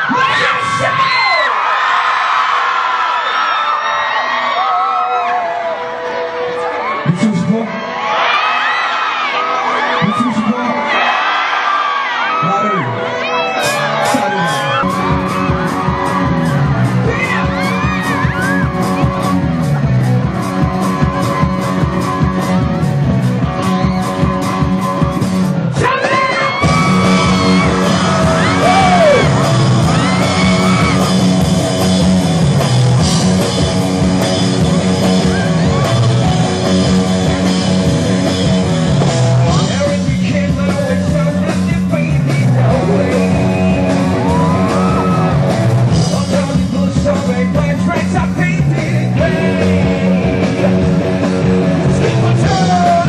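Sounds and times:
live rock band playing: 12.2 - 53.0
man singing: 39.5 - 44.5, 45.9 - 53.0.

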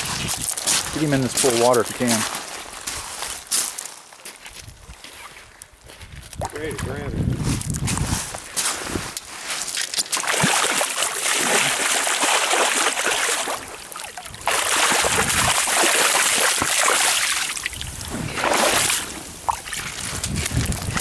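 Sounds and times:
fish thrashing and splashing in water: 9.5 - 21.0.

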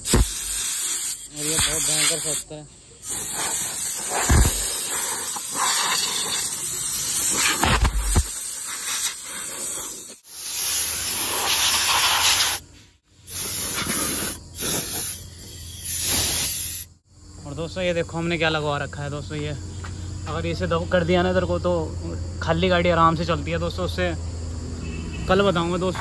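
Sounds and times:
compressed air blow gun hissing: 0.0 - 17.0.

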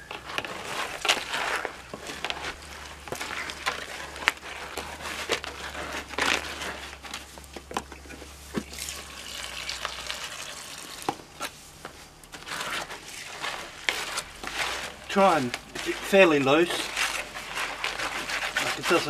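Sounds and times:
concrete scraping in plastic tub: 0.0 - 9.1, 9.7 - 19.0
hose running water: 8.6 - 11.2.

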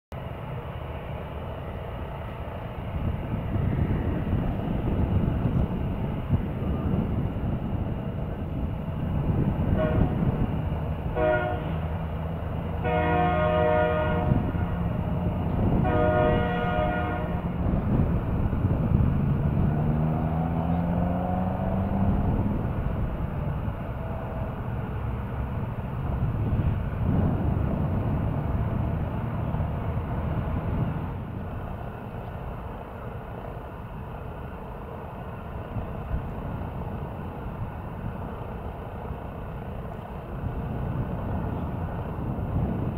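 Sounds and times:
low rumble of airliner and tug: 0.1 - 42.9
chorded horn blasts: 9.8 - 10.3, 11.1 - 11.9, 12.8 - 14.8, 15.8 - 17.6.

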